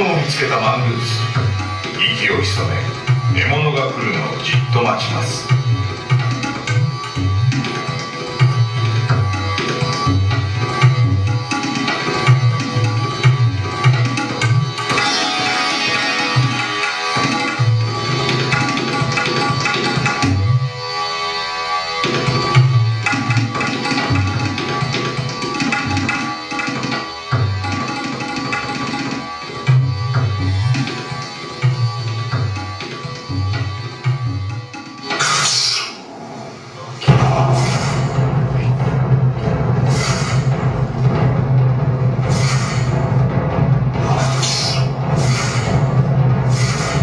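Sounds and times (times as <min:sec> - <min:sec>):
sustained drone: 0:34.6 - 0:47.0
low drum strokes: 0:36.1 - 0:47.0.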